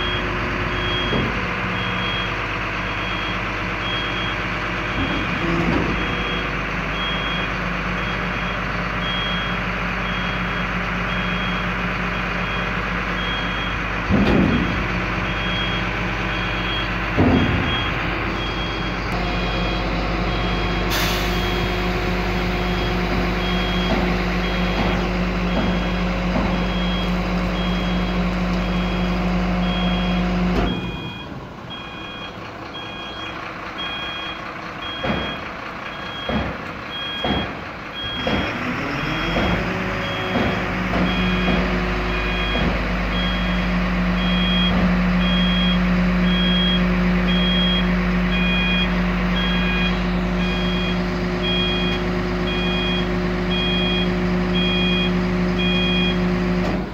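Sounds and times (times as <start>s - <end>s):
diesel truck engine running: 0.0s - 56.9s
loud thumps: 14.0s - 14.9s, 17.1s - 18.1s.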